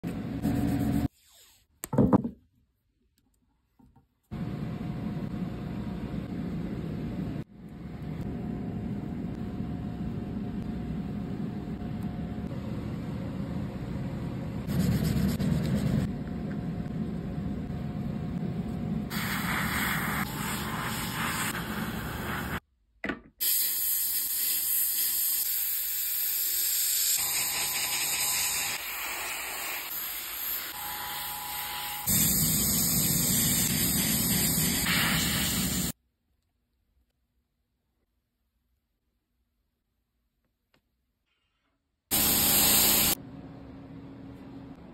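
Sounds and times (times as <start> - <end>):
airbrush air hiss: 19.1 - 22.6, 23.4 - 36.0, 42.1 - 43.2.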